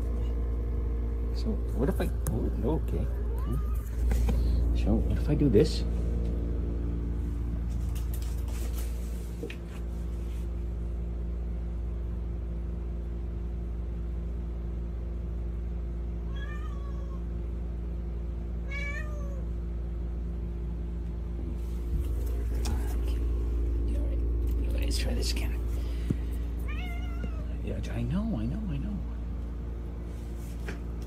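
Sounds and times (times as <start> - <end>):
low steady hum: 0.0 - 31.0
cat meowing: 3.2 - 4.0, 16.3 - 17.3, 18.6 - 19.5, 26.6 - 27.5.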